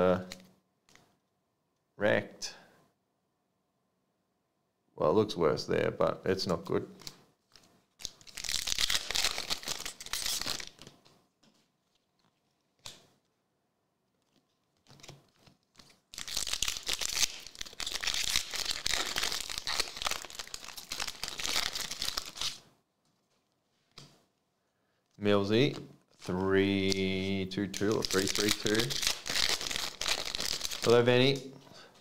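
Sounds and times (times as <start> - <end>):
foil wrappers tearing and crinkling: 8.0 - 10.9, 14.8 - 22.6, 27.8 - 31.0.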